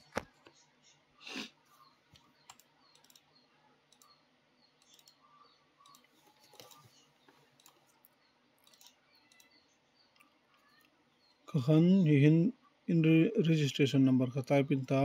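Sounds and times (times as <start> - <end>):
soft clicks: 2.1 - 3.3, 3.9 - 4.2, 4.8 - 5.2, 5.8 - 11.0.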